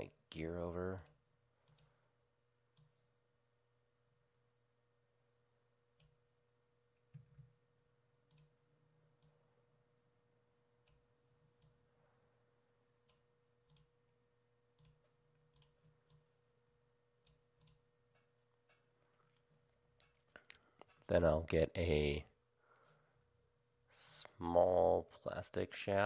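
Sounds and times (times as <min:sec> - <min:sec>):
low steady hum: 0:00.0 - 0:26.0
computer mouse clicks: 0:01.0 - 0:01.9, 0:08.2 - 0:08.6, 0:13.0 - 0:13.9, 0:14.8 - 0:16.2, 0:17.2 - 0:18.9.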